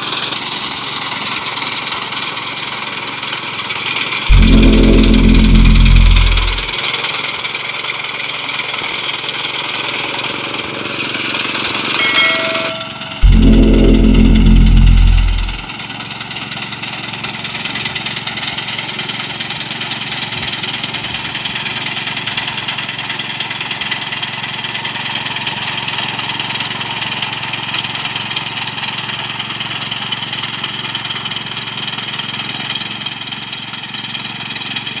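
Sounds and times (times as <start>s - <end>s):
power reaper engine running: 4.3s - 6.7s.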